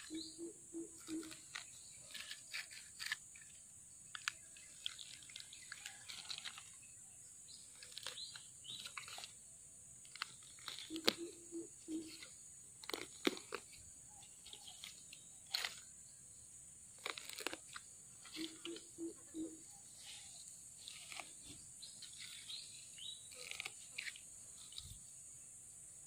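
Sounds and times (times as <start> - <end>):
bird chirps: 0.0 - 2.6, 3.3 - 9.3, 10.6 - 12.5, 18.2 - 25.5
dry sticks and leaves crunching: 1.0 - 9.4, 10.1 - 15.9, 16.9 - 25.1
steady high-pitched hiss: 17.7 - 26.0.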